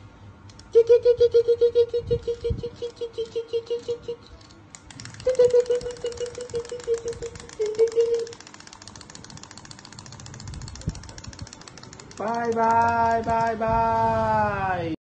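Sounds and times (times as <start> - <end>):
wind-up toys ticking on tabletop: 2.2 - 13.6.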